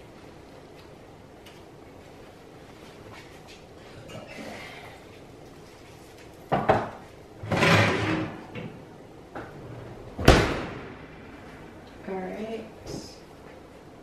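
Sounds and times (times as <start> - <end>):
baking pan scraping clatter: 7.4 - 8.5.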